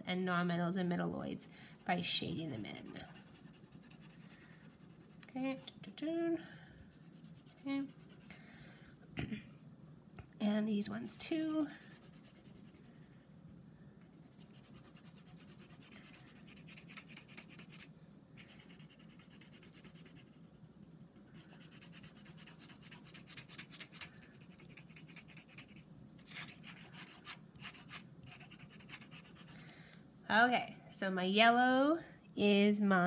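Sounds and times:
pencil scratching on paper: 0.0s - 5.8s, 6.8s - 8.3s, 11.3s - 13.4s, 14.0s - 29.6s.

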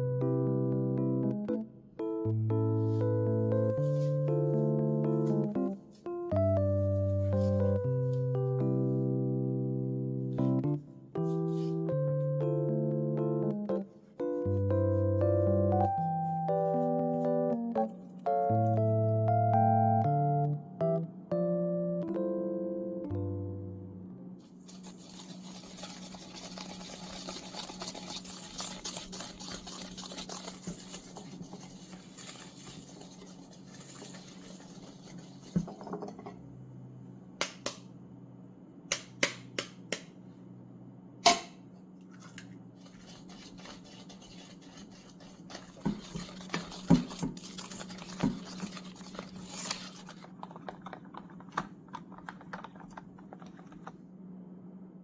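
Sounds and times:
low steady hum: 0.0s - 55.0s
spatula scraping mixing bowl: 24.7s - 35.8s, 42.8s - 51.6s.

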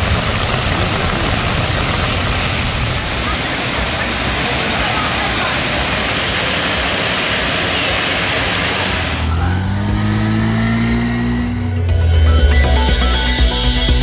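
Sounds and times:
motor scooter engine running: 0.0s - 6.0s, 6.7s - 14.0s
rushing floodwater: 0.0s - 10.9s.

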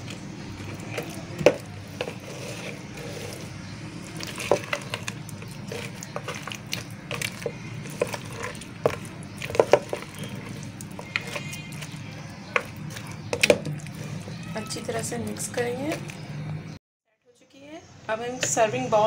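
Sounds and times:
spatula stirring thick mix: 0.0s - 16.8s
spatula knocking bowl: 4.2s - 14.0s.

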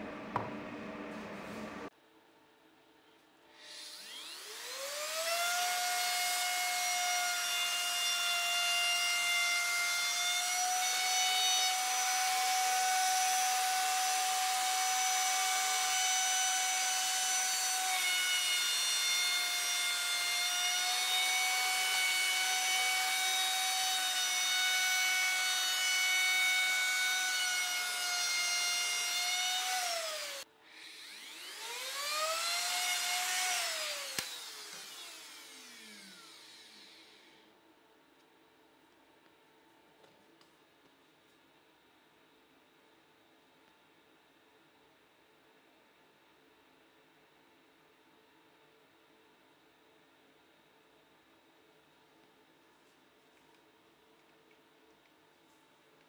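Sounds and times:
electric router whining: 3.7s - 8.6s, 10.0s - 37.4s.

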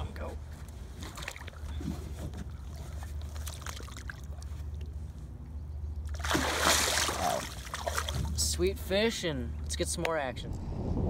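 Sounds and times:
low steady hum: 0.0s - 11.0s
fish splashing in water: 2.7s - 4.9s, 6.0s - 8.4s.

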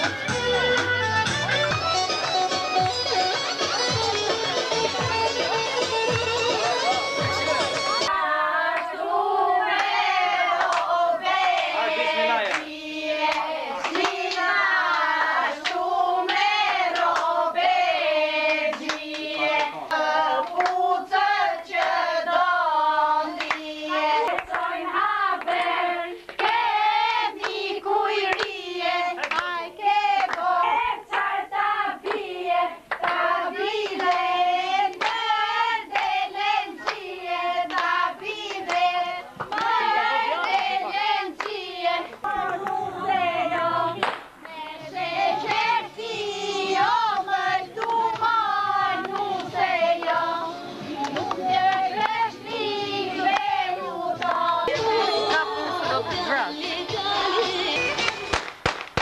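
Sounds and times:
hand-clapping: 0.0s - 8.0s, 10.6s - 10.9s, 12.4s - 17.4s, 18.4s - 20.8s, 23.3s - 24.7s, 25.4s - 26.6s, 27.4s - 27.6s, 28.2s - 28.6s, 29.2s - 30.5s, 32.0s - 32.3s, 32.9s - 36.2s, 36.8s - 40.7s, 41.4s - 42.8s, 44.0s - 44.6s, 46.8s - 50.2s, 50.9s - 53.6s, 54.2s - 55.8s, 56.9s - 59.0s
women singing: 4.8s - 58.2s.

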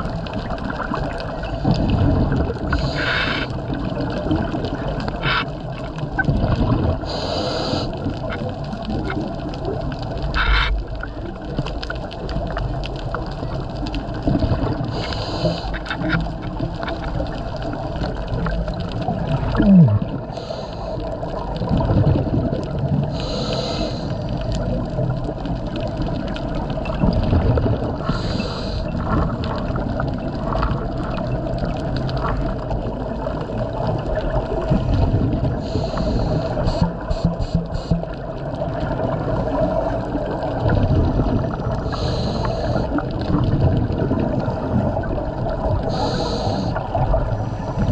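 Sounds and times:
exhaled bubbles rumbling: 0.0s - 47.9s
regulator inhale hiss: 2.7s - 3.5s, 7.0s - 8.0s, 14.9s - 15.9s, 20.3s - 21.1s, 23.1s - 24.4s, 28.0s - 28.9s, 35.6s - 38.1s, 41.8s - 43.0s, 45.8s - 47.9s.

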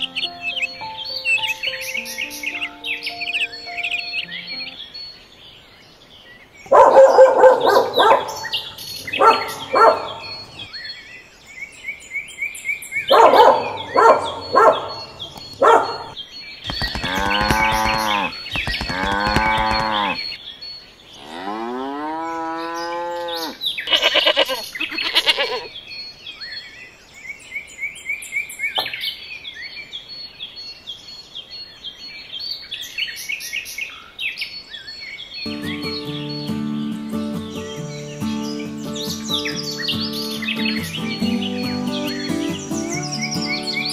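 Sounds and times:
birds chirping: 0.0s - 43.9s
cattle mooing: 17.0s - 20.2s.

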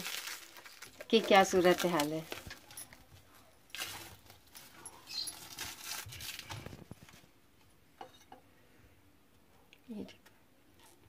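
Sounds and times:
plastic film crinkling: 0.0s - 7.3s.

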